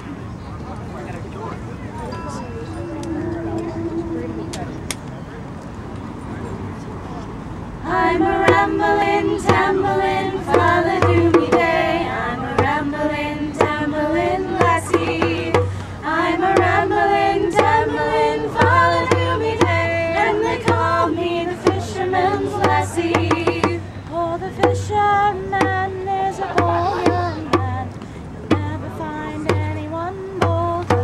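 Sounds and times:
group singing folk song: 7.8s - 31.0s
frame drum beat: 8.0s - 23.8s, 25.6s - 27.8s, 28.5s - 29.8s.

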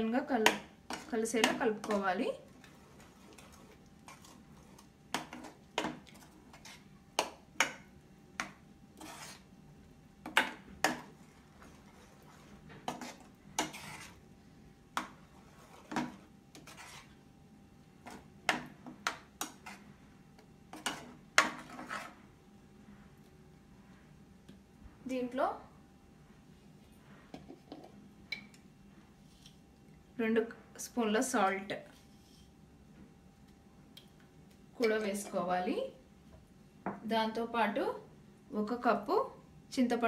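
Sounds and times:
spoon scraping a frying pan: 0.5s - 7.8s, 8.4s - 9.5s, 10.3s - 14.2s, 15.0s - 17.2s, 18.0s - 19.9s, 20.7s - 22.2s.

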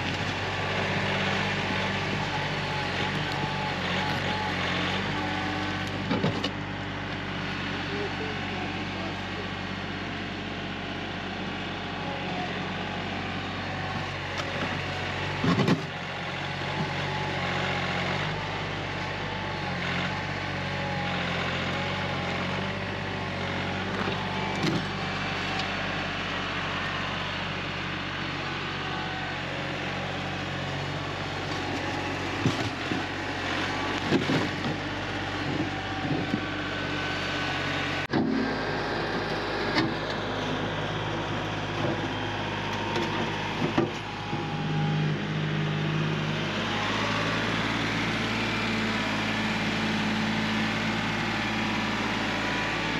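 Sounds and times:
tractor engine running: 0.0s - 52.9s
knocks and clunks: 32.4s - 33.1s, 38.1s - 38.5s, 42.9s - 44.5s.

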